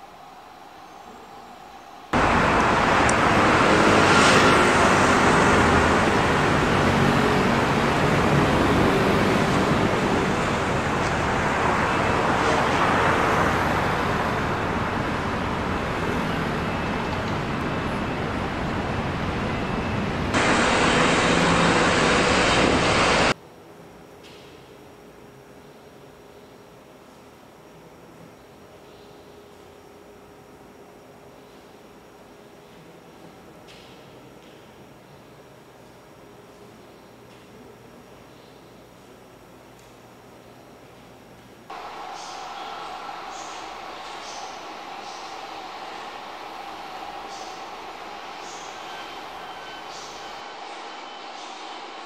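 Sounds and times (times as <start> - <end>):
city street traffic: 2.1 - 23.4, 41.7 - 52.0.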